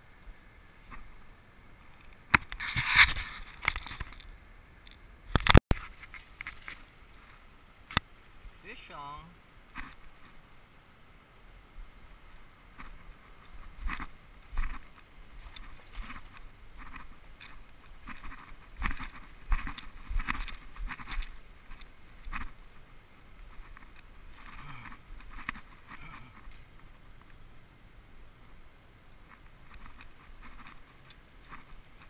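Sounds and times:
scrapes and knocks on rocks: 1.9s - 4.3s, 5.4s - 7.3s, 12.7s - 22.6s, 23.4s - 27.0s.

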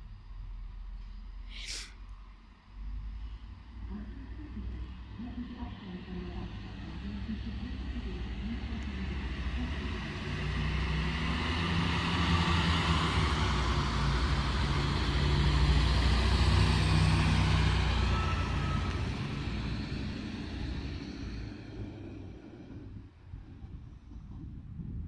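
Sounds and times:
diesel engine droning: 0.0s - 25.0s
wheel on rail hiss: 1.5s - 2.0s.

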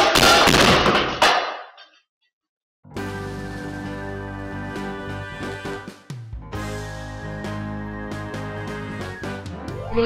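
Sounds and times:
instrumental background music: 2.9s - 10.0s.

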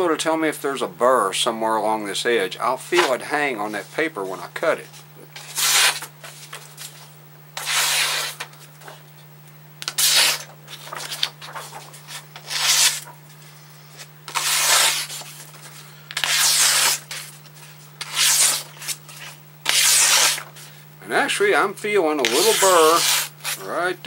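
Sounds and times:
knife slicing through paper: 5.4s - 6.1s, 7.6s - 8.4s, 9.9s - 13.2s, 14.3s - 15.4s, 16.2s - 17.3s, 18.0s - 20.5s, 22.2s - 23.6s.

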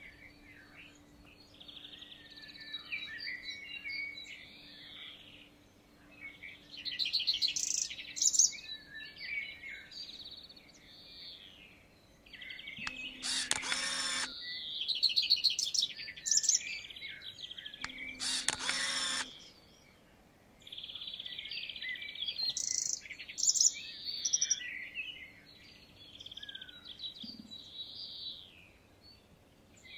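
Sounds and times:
songbirds chirping and singing: 0.0s - 29.9s
harsh bird bursts: 12.9s - 14.3s, 17.9s - 19.3s.

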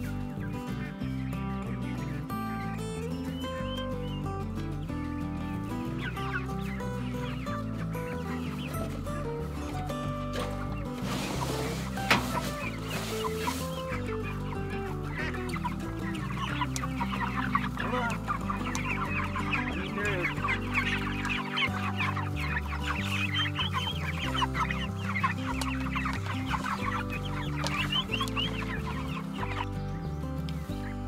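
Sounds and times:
background music: 0.0s - 31.0s
chicks cheeping and clucking: 0.0s - 31.0s.

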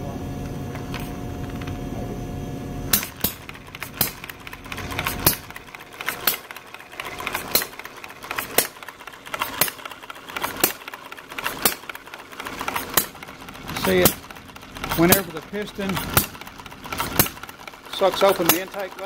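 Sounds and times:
light mechanical clicking: 2.9s - 19.0s.

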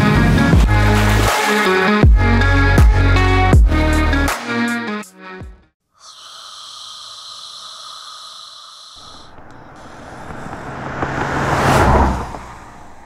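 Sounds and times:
low engine hum and rushing: 9.1s - 13.0s.

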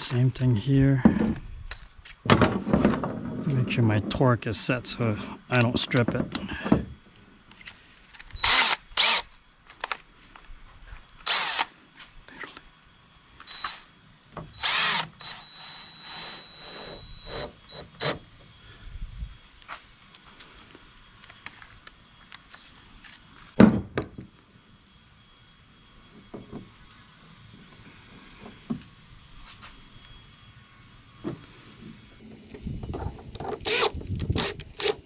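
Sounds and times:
cordless drill whining: 7.6s - 10.0s, 11.2s - 11.7s, 13.4s - 18.3s, 32.2s - 35.0s.

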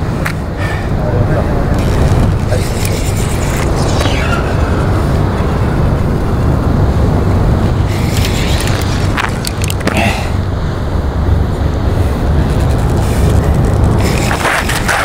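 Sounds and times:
wind rumbling on microphone: 0.0s - 15.0s
faint clicks and scrapes: 1.7s - 4.5s, 7.9s - 10.0s, 12.4s - 15.0s.

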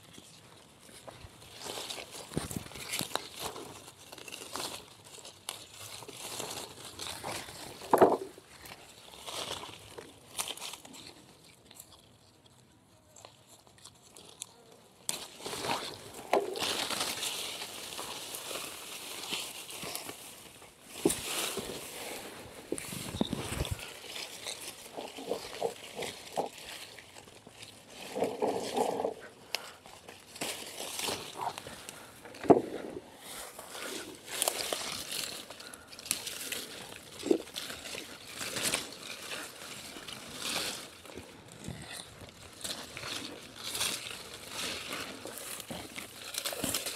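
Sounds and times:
leaves and twigs rustling: 0.0s - 46.9s
twigs snapping: 13.8s - 21.8s, 22.7s - 46.9s.

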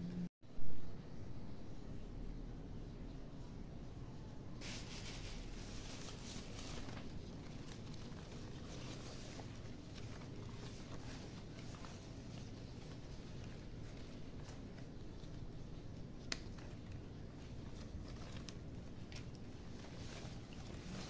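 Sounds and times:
leaves rustling: 4.6s - 21.0s.

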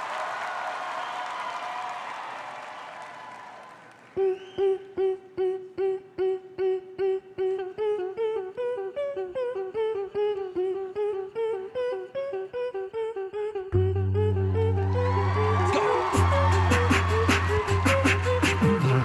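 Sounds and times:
beatboxing vocal notes: 4.2s - 19.0s
deep bass tone: 13.8s - 19.0s.

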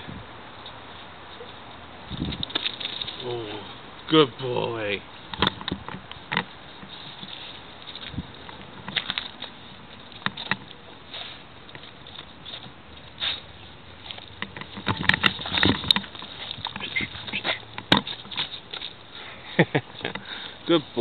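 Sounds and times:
dog sniffing: 11.0s - 14.3s, 15.4s - 19.3s.

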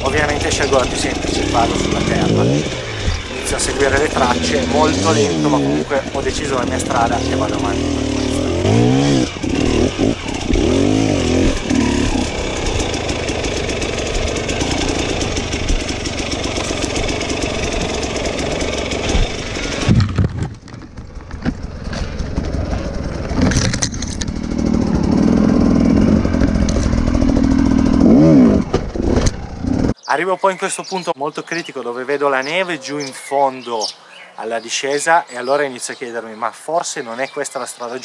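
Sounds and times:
motorcycle engine revving: 0.0s - 30.0s.

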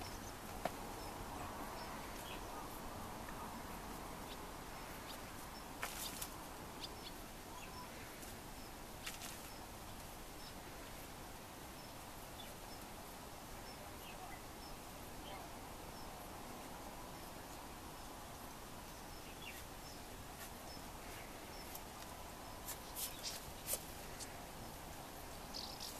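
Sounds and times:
ferrets digging in soil: 0.0s - 7.0s, 20.3s - 24.6s
small birds chirping: 0.0s - 25.9s.

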